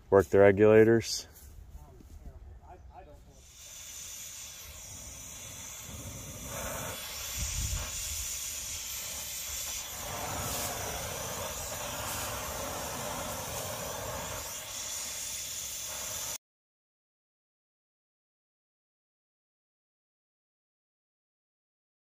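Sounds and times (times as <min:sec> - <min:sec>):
cutting torch hissing: 0:03.1 - 0:16.4.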